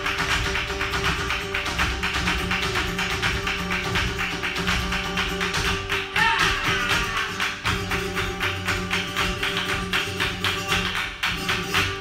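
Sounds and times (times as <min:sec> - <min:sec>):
dancer's footwork stamping: 0:00.0 - 0:12.0
flamenco guitar: 0:00.0 - 0:12.0
rhythmic hand-clapping: 0:00.0 - 0:12.0.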